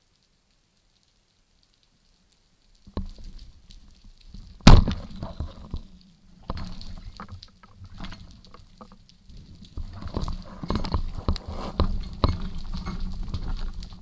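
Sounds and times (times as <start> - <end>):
faint clicks and knocks: 0.1 - 14.0
speargun firing crack: 4.6 - 5.1.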